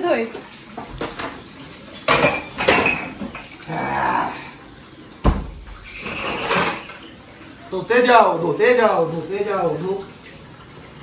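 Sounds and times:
tap running: 0:00.3 - 0:03.6
dishes clanking in a sink: 0:00.3 - 0:04.5, 0:05.1 - 0:07.2.

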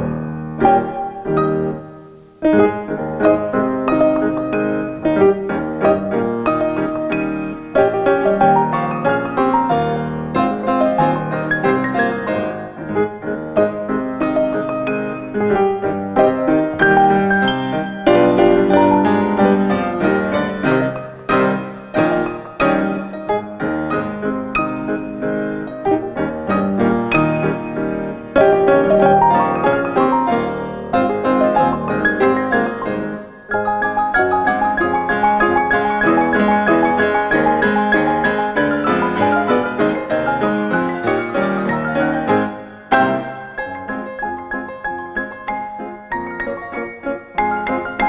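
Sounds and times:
two pianos playing classical piece: 0:00.0 - 0:48.0.

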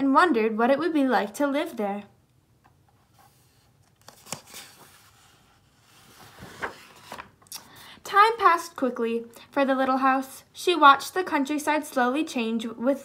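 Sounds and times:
soft clicks of pages turning: 0:02.6 - 0:05.2, 0:05.8 - 0:07.8
paper pages rustling: 0:02.9 - 0:07.7.

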